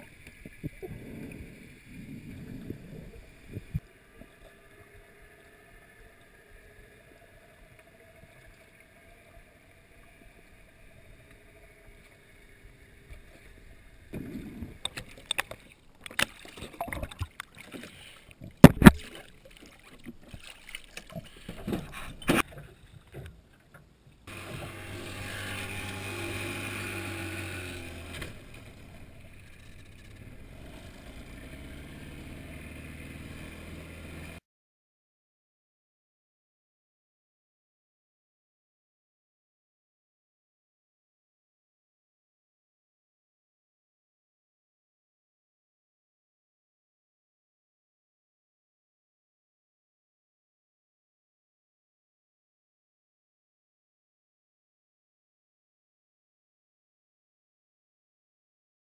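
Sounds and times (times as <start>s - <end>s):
water splashing: 0.0s - 23.3s
water noise: 0.0s - 34.4s
boat motor humming: 24.3s - 34.4s.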